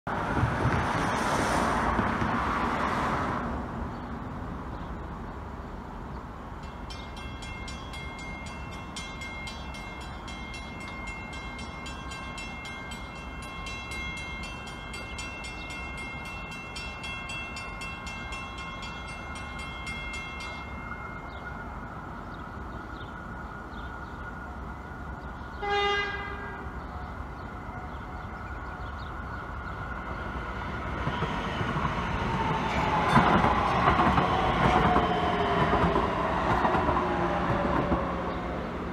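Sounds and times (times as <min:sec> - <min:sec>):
cars passing: 0:00.1 - 0:38.9
mechanical crossing bell ringing: 0:06.6 - 0:21.4.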